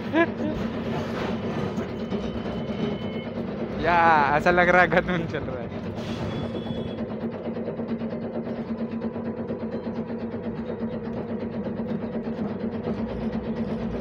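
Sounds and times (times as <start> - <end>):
tram humming: 0.0 - 14.0
fast rattling clatter: 6.9 - 14.0.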